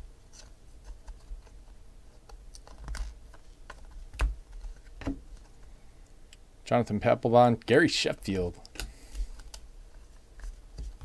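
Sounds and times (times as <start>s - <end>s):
trading cards flipping and clicking: 0.3s - 5.7s.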